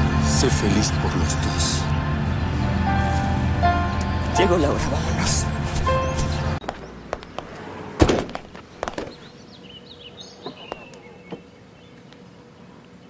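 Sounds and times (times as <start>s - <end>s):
faint bird chirps: 9.0s - 13.0s.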